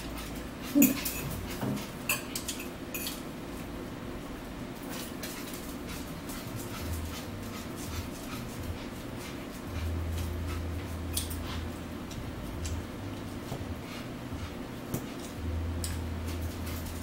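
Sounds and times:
steady low hum: 0.0 - 17.0
forks clicking on plates: 0.2 - 3.2, 11.1 - 11.4.

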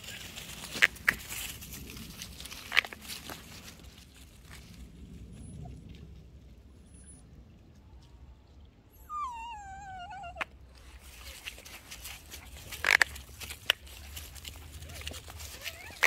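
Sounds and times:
small dog whining: 9.0 - 10.5, 14.8 - 16.0.

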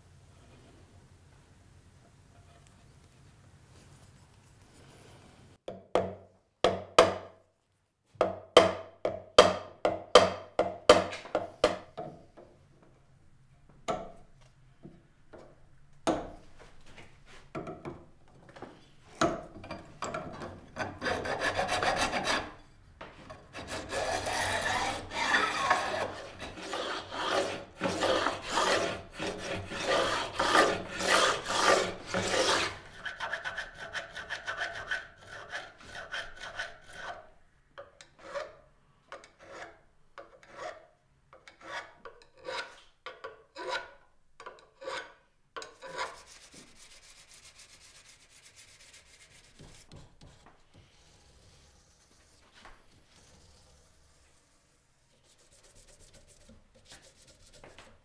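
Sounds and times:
metal file stroking fret edges: 20.8 - 22.7, 23.5 - 37.2, 39.2 - 40.8, 44.8 - 47.3.

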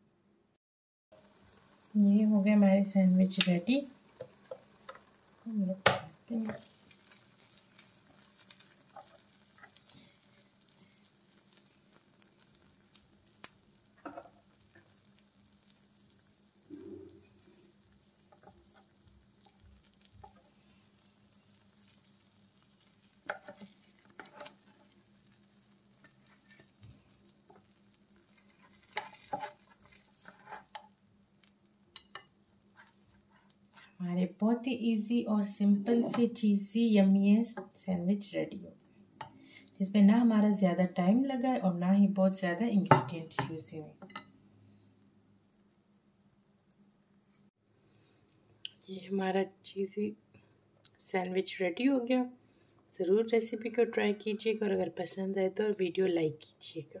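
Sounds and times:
sandwiches sizzling and crackling: 1.2 - 34.0, 43.6 - 48.3
spatula clicks and scrapes: 22.8 - 25.0, 27.5 - 31.0.

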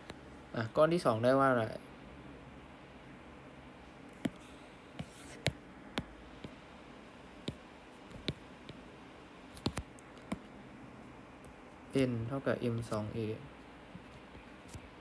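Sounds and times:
low steady background: 0.0 - 15.0
stylus tapping on tablet screen: 4.1 - 6.6, 7.4 - 8.9, 9.5 - 10.6.

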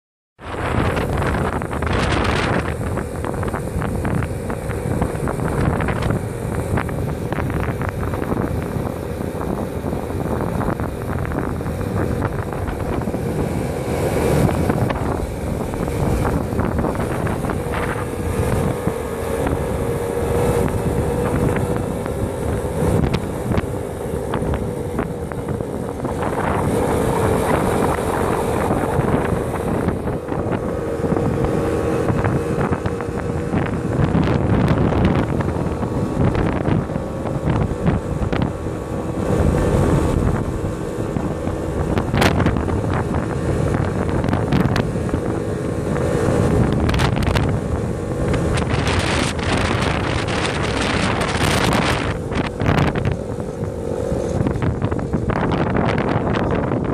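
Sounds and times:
wind buffeting microphone: 0.4 - 56.9.

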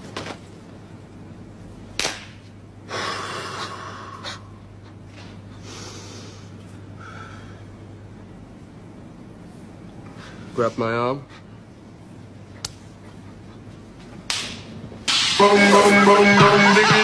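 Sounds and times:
palms smacking together: 2.0 - 2.5, 14.2 - 14.7
man breathing heavily: 2.9 - 7.9.

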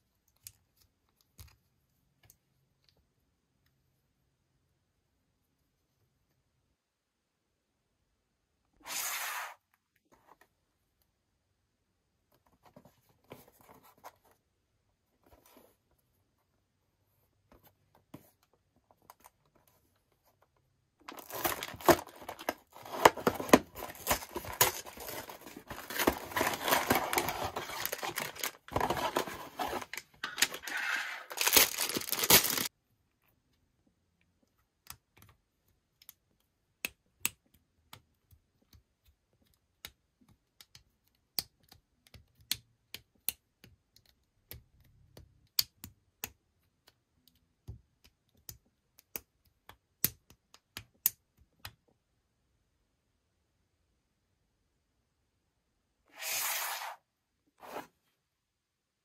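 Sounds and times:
plastic bags crinkling: 21.1 - 32.7
cardboard box tearing: 21.2 - 30.0.

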